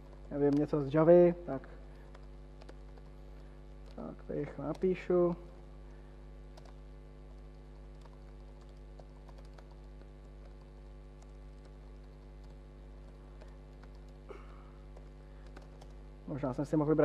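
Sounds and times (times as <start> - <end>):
steady hum: 0.0 - 17.0
laptop keyboard typing: 1.9 - 5.6, 6.5 - 16.0.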